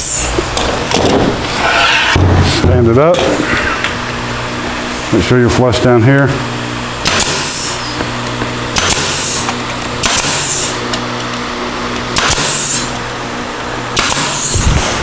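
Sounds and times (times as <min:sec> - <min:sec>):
steady low hum: 0:00.0 - 0:15.0
pneumatic staple gun firing: 0:07.0 - 0:07.9, 0:08.7 - 0:10.8, 0:12.1 - 0:13.0, 0:13.9 - 0:15.0.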